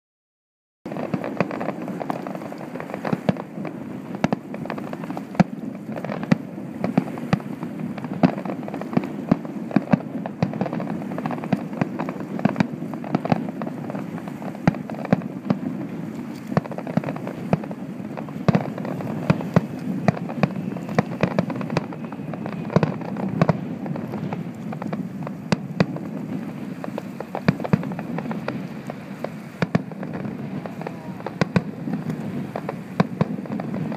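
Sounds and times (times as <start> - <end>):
firework shells bursting: 0.9 - 33.9.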